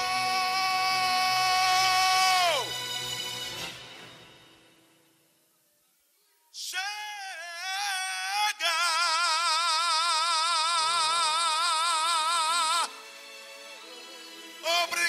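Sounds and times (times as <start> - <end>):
man singing high note with vibrato: 0.0 - 2.8, 6.5 - 13.0, 14.6 - 15.0.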